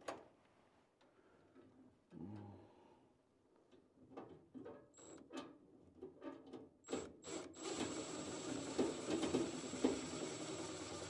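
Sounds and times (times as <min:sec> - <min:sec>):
power screwdriver whirring: 0:06.9 - 0:11.0.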